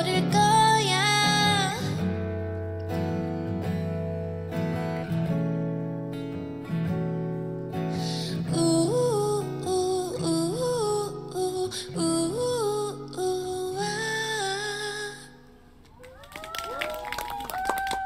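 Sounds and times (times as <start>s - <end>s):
woman singing: 0.0s - 2.1s, 8.0s - 15.6s
acoustic guitar strumming: 0.0s - 15.8s.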